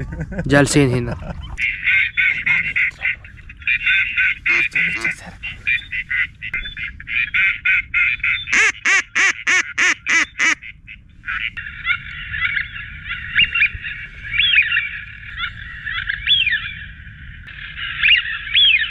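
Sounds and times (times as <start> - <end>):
ducks quacking: 1.4 - 16.4
loud honking quacks: 1.6 - 6.3, 7.2 - 11.6.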